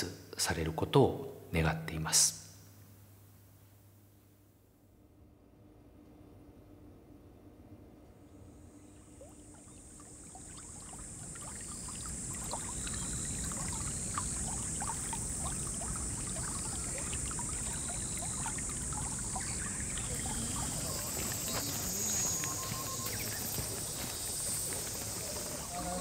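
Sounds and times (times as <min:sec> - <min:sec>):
steady high-pitched hiss: 0:00.0 - 0:26.0
river water lapping and trickling: 0:08.8 - 0:26.0.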